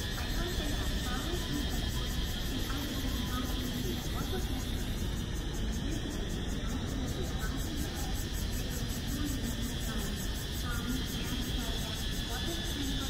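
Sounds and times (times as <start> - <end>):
faint indistinct voices: 0.0 - 13.0.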